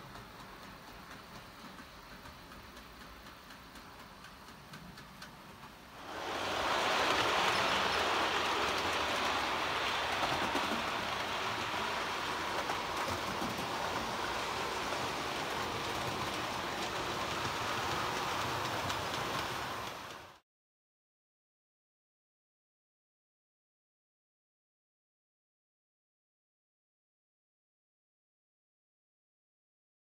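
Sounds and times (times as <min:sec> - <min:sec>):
model train wheels rolling on rail: 0:00.0 - 0:20.4.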